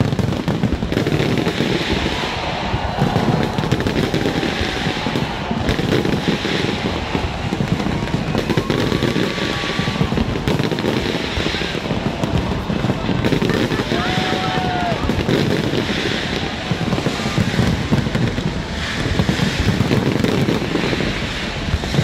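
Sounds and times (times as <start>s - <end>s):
fireworks bursting and crackling: 0.0s - 22.0s.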